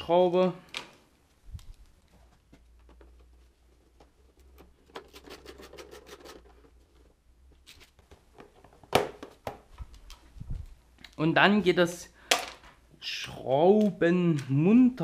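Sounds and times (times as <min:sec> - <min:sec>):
gloved hands handling plastic parts: 0:00.6 - 0:11.3, 0:12.2 - 0:13.0.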